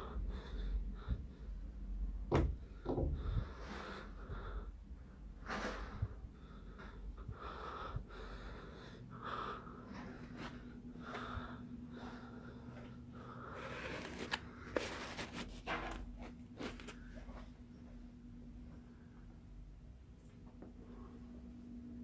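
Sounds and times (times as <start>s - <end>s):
person breathing heavily: 0.0s - 1.9s, 2.7s - 15.2s
faint low hum: 0.0s - 22.0s.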